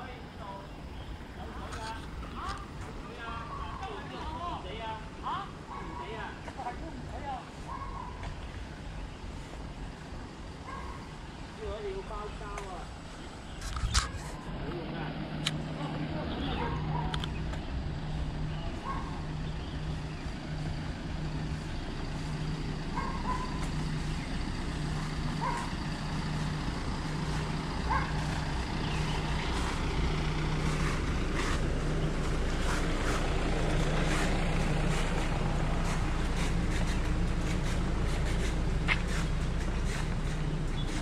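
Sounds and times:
large vehicle engine idling: 0.0 - 41.0.

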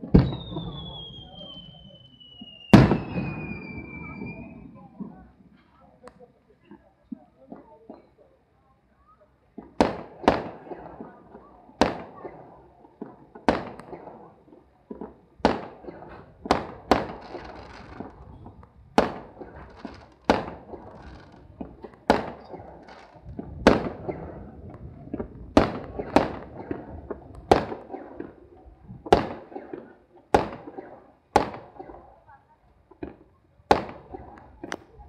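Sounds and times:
fireworks shells bursting: 14.9 - 24.3.

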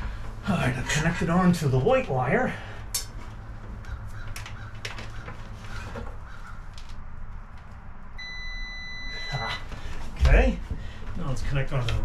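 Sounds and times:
low steady hum: 0.0 - 12.0
multimeter continuity beep: 8.2 - 9.6.

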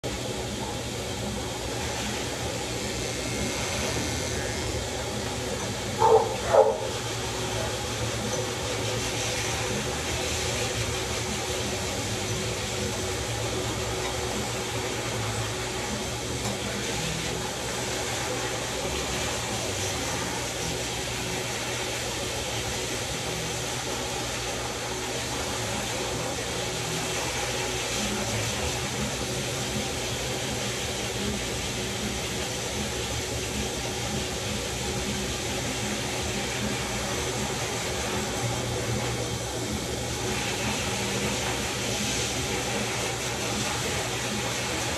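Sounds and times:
electric dog clippers running: 0.2 - 23.5.

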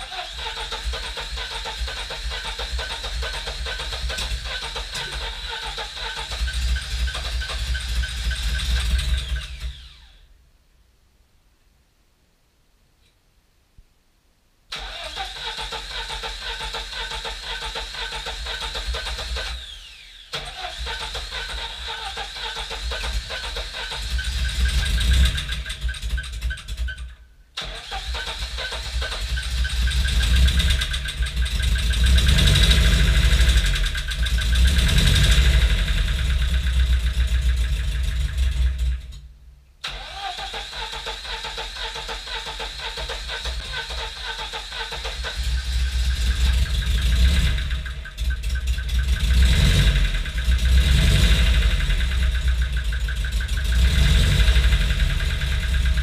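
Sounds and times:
car engine running and revving: 0.0 - 9.8, 20.7 - 26.8, 28.9 - 39.2, 45.1 - 56.0.

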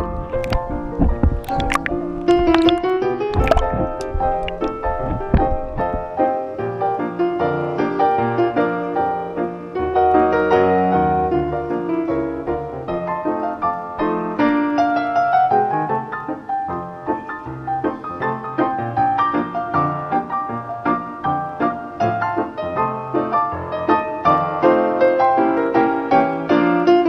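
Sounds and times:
low watery rumbling: 0.0 - 6.8
fast piano music: 0.0 - 27.0.

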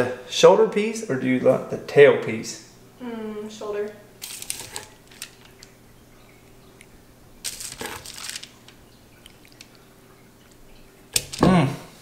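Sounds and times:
utensil clinking on foil and plate: 4.2 - 5.7, 7.4 - 9.8.

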